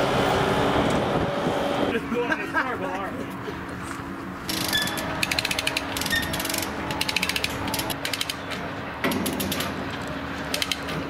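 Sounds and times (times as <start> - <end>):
chain hoist ratcheting clicks: 4.5 - 9.8, 10.5 - 11.0.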